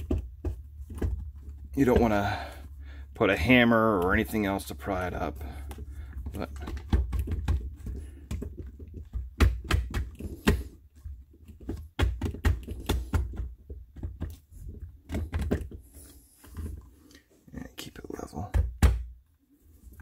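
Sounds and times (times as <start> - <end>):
plastic clicks and knocks: 0.0 - 2.2, 3.9 - 16.9
dull handling thumps: 0.0 - 17.0.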